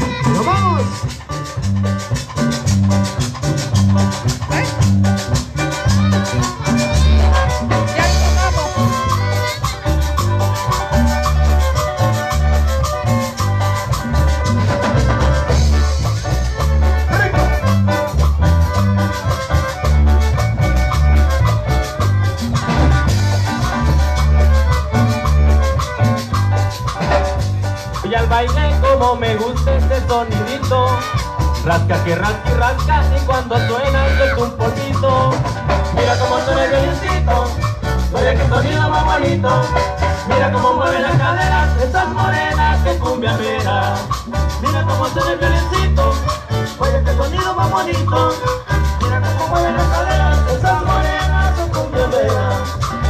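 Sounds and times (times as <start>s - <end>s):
bouncing bass line: 0.0s - 53.0s
drum kit: 0.0s - 53.0s
shaker percussion: 0.0s - 53.0s
violins playing melody: 5.5s - 26.8s.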